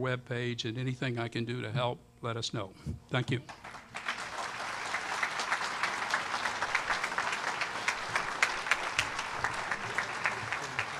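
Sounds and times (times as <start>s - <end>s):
audience applauding: 3.5s - 10.9s.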